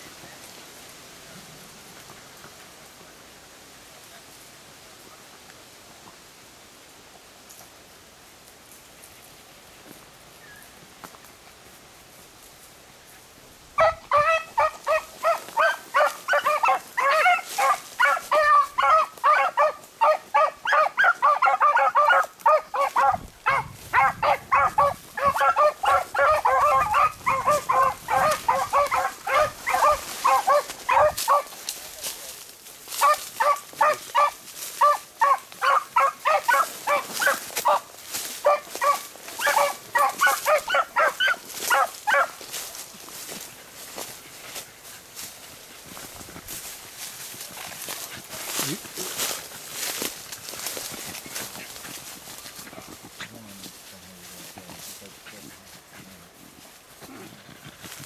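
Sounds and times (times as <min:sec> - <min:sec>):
hounds baying: 0:13.7 - 0:31.7, 0:32.9 - 0:43.5.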